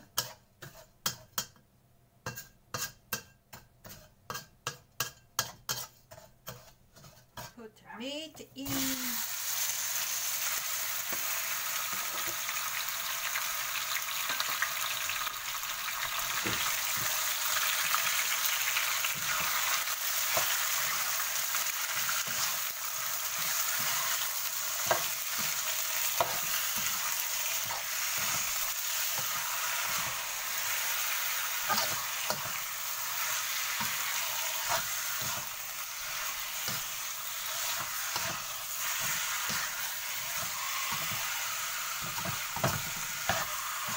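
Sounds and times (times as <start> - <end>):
metal utensil stirring in wok: 0.0 - 1.6, 2.2 - 7.7, 16.0 - 43.9
meat sizzling in hot oil: 8.6 - 43.9.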